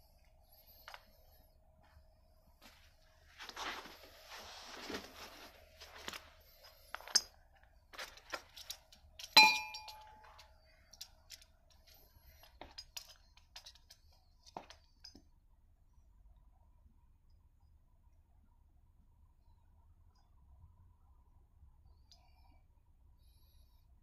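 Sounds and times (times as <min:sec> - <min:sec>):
metal parts clinking and tapping: 0:06.9 - 0:07.4, 0:08.0 - 0:15.3
loud ringing metallic clink: 0:09.3 - 0:10.3.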